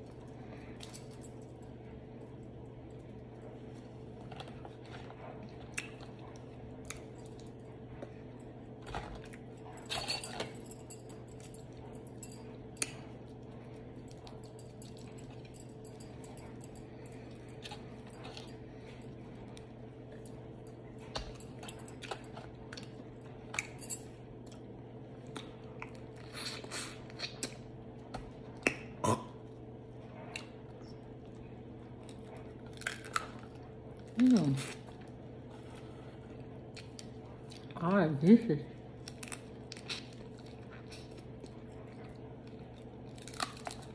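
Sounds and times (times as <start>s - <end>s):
chewing and lip smacks: 4.2s - 7.6s.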